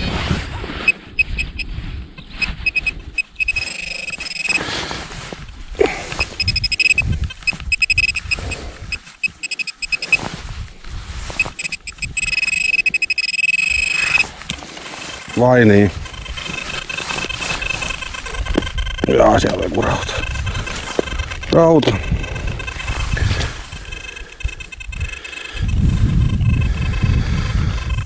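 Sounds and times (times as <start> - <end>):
hands scraping through dirt: 0.0 - 13.0, 13.7 - 18.7
metal detector beeping: 0.8 - 10.5, 11.2 - 28.0.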